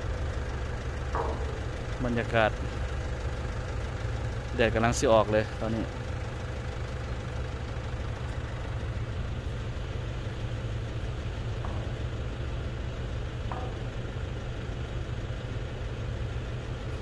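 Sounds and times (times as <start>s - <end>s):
boat engine drone: 0.0s - 17.0s.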